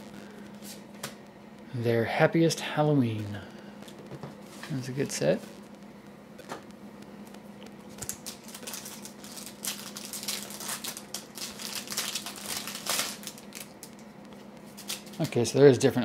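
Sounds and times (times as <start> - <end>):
plastic wrapper crinkling: 7.8 - 15.6
cards being shuffled: 14.7 - 15.4.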